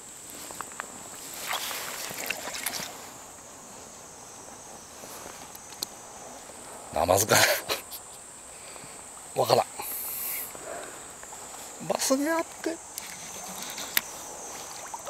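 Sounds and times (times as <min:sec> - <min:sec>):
water splashing and lapping: 0:00.3 - 0:03.3, 0:13.0 - 0:15.0.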